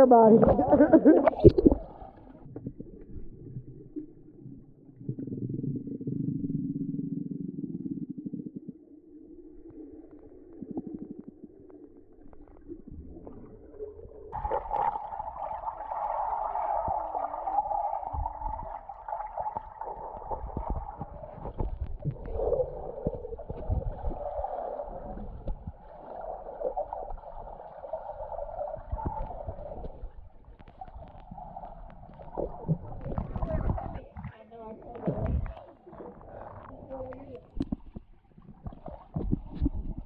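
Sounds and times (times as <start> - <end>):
water gurgling underwater: 0.0 - 40.0
underwater knocks: 0.4 - 2.9, 18.0 - 25.9, 28.8 - 35.6.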